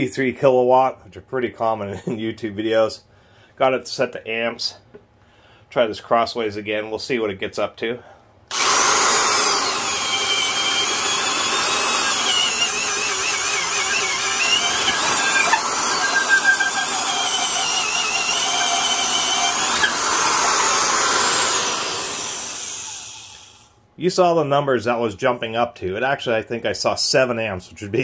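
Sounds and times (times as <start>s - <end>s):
electric drill boring through wood: 8.5s - 23.7s.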